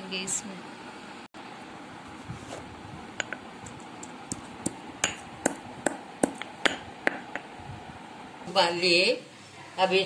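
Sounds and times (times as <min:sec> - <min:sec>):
pestle knocking in stone mortar: 0:03.2 - 0:07.5.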